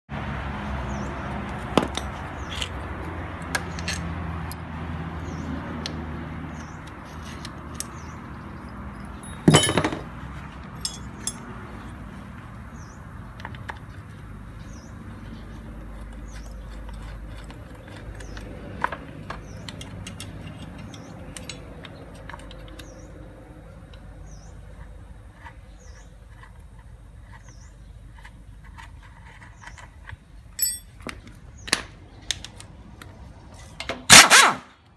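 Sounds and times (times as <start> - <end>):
metal hand tools clinking: 8.9 - 10.0, 10.8 - 11.5, 30.6 - 31.1.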